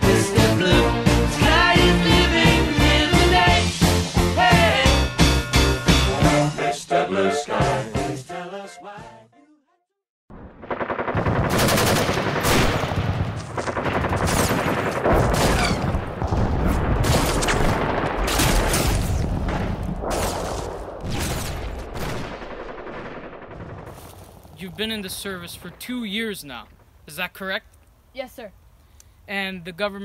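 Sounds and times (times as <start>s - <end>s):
rapid machine-gun fire: 10.5s - 18.8s, 19.4s - 24.0s.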